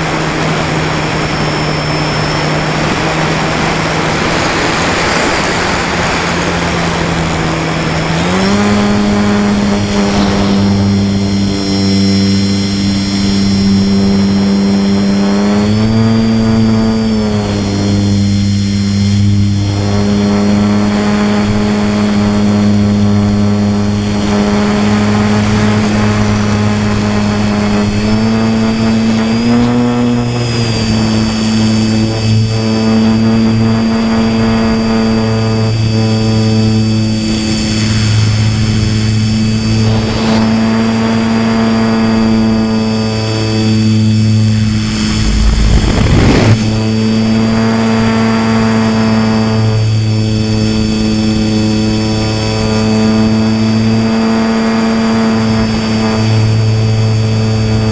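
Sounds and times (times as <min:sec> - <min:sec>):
model airplane motor buzzing: 0:00.0 - 0:57.9
short rush of noise: 0:44.2 - 0:47.0.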